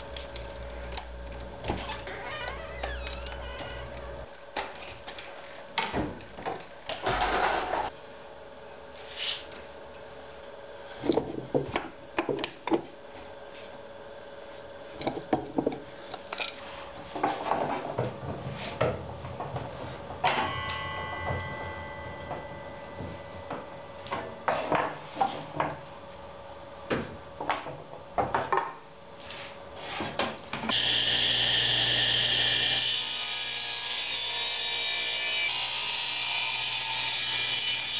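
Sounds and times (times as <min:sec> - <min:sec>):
table saw cutting wood: 0:30.7 - 0:37.9.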